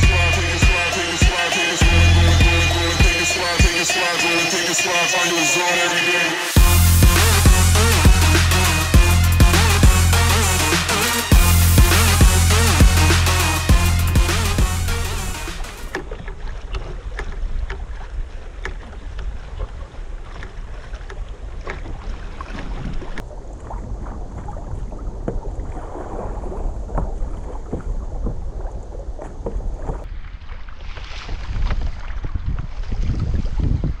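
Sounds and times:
water slapping against hull: 15.8 - 34.0
wind buffeting microphone: 22.7 - 34.0.

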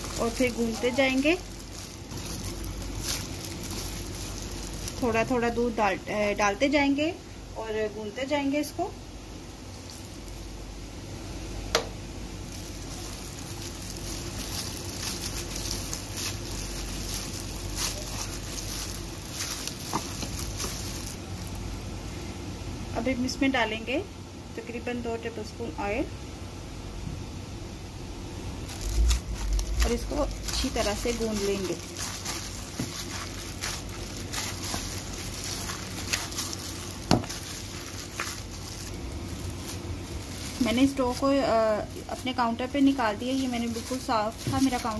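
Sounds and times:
hand kneading wet dough: 0.0 - 6.6, 12.4 - 21.7, 28.7 - 44.9.

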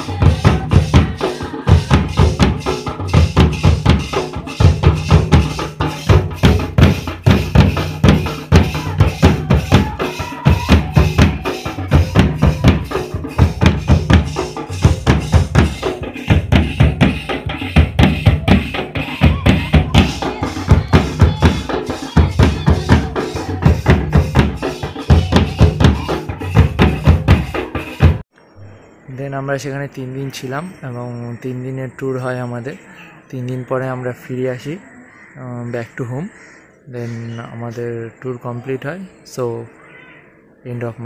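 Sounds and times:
large drums beaten fast: 0.0 - 28.2.

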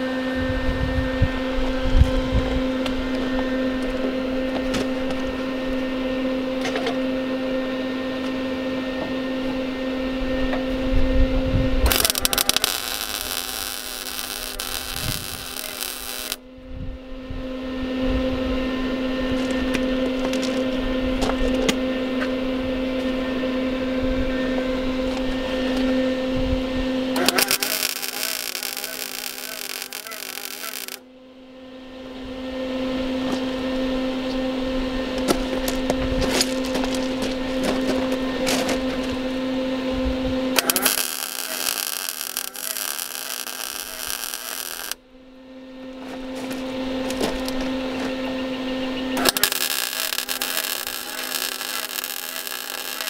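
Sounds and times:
electrical hum: 0.0 - 53.0
arc welding crackle: 11.8 - 16.4, 27.2 - 31.0, 36.3 - 38.7, 40.6 - 45.0, 49.2 - 53.0
clicks: 27.2 - 31.0, 40.6 - 45.0.

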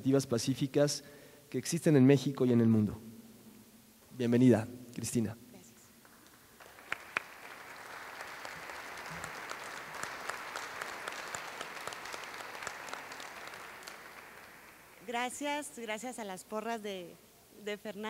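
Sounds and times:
audience applauding: 6.1 - 15.0.

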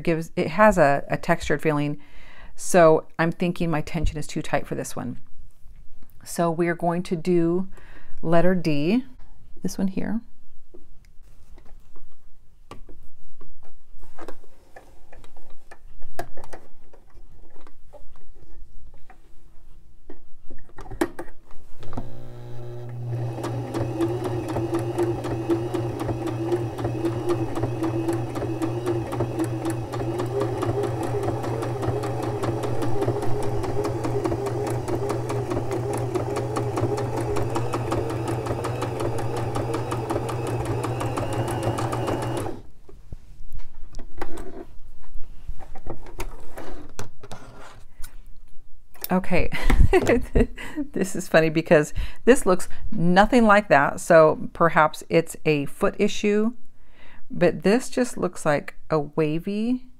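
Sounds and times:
sewing machine stitching: 21.8 - 42.7.

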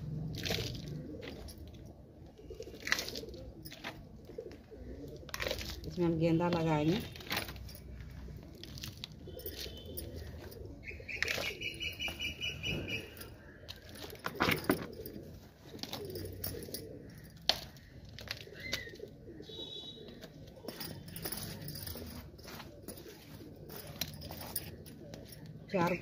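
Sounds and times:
birds calling: 7.7 - 26.0.

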